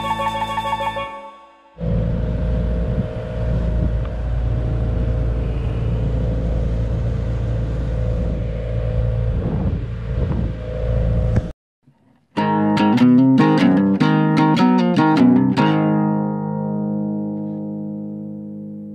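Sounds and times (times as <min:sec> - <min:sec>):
boat engine humming: 0:01.8 - 0:11.5.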